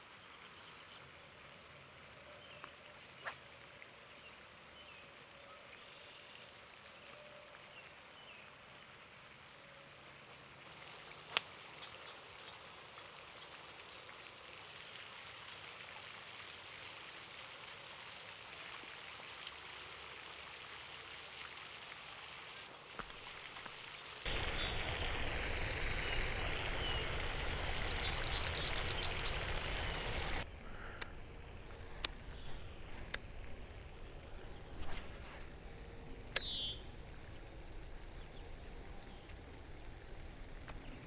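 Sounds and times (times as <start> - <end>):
water rush with low rumble: 0.1 - 41.0
spraying water hiss: 10.6 - 37.0
birds chirping and trilling: 24.3 - 32.9, 36.1 - 39.4.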